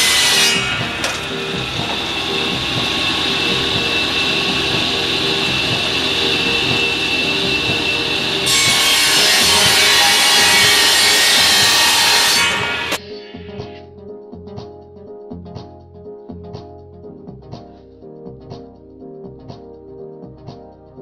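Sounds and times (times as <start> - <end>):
circular saw cutting wood: 0.0 - 13.0.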